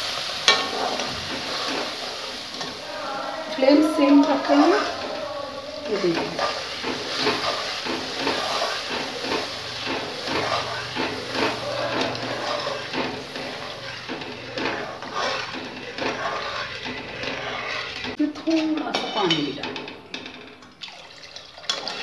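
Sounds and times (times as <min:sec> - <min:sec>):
metal spatula stirring in a pan: 0:00.0 - 0:22.0
sizzling and bubbling: 0:00.0 - 0:22.0
milk pouring into a pan: 0:20.6 - 0:22.0.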